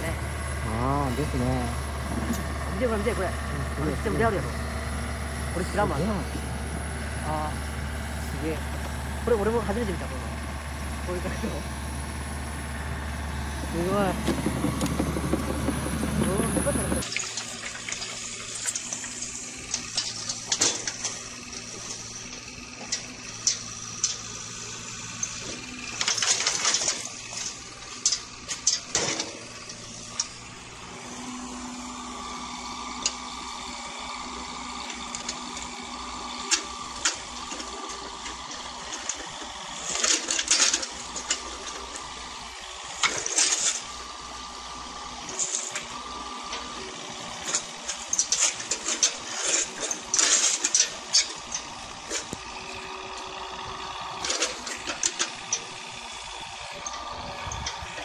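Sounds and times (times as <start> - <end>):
sharp knocks and clatters: 14.1 - 19.0.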